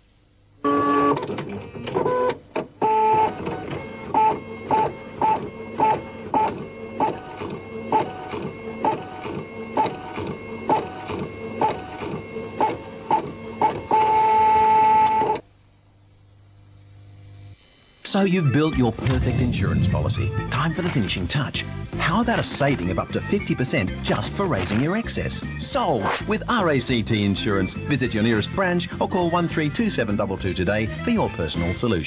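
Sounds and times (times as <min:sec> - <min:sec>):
printer buzzing: 0:00.6 - 0:15.5
printer clicks: 0:01.1 - 0:15.4.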